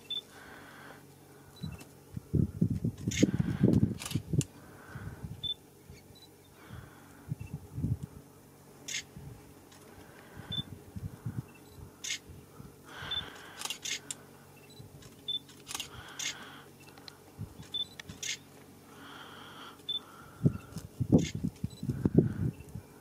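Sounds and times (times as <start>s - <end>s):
camera shutter clicks: 4.0s - 4.2s, 8.9s - 9.1s, 15.0s - 16.4s, 17.7s - 18.4s.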